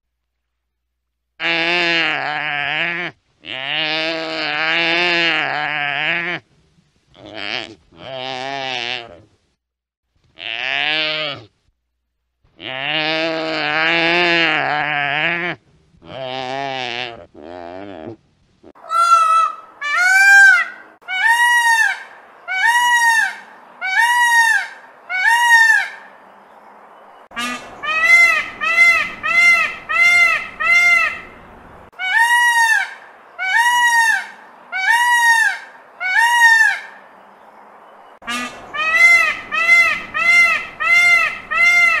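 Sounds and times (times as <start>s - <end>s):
peacock calling: 18.7s - 26.3s, 27.3s - 37.3s, 38.2s - 42.0s.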